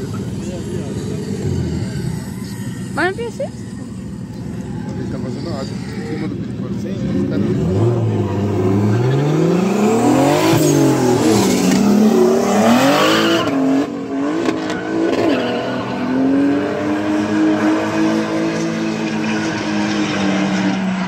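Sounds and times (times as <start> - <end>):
car engines revving: 0.0 - 21.0
tyre squeal: 14.4 - 16.7.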